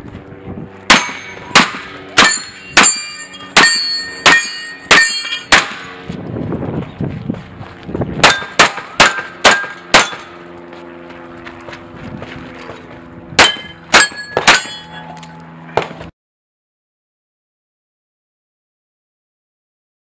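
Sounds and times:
pistol shots: 0.9s - 3.0s, 3.6s - 5.9s, 8.2s - 10.3s, 13.4s - 14.8s
steel plate ringing: 0.9s - 5.8s, 8.2s - 10.3s, 13.4s - 15.4s.

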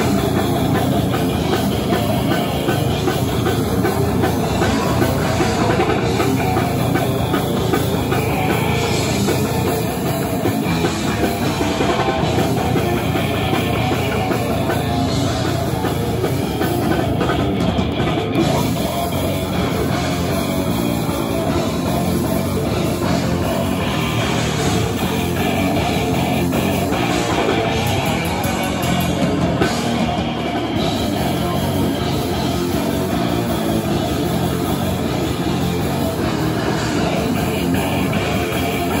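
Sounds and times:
death metal band playing: 0.0s - 39.0s.

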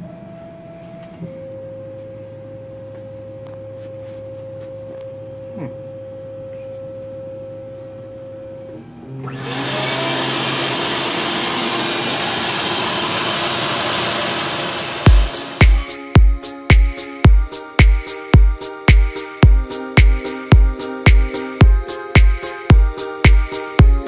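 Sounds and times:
machine humming whine: 4.9s - 15.9s
vacuum hissing: 9.3s - 16.1s.

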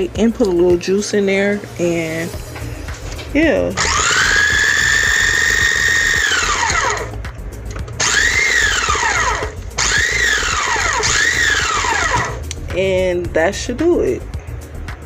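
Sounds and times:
food chopper motor whining: 3.8s - 7.2s, 8.0s - 12.6s.

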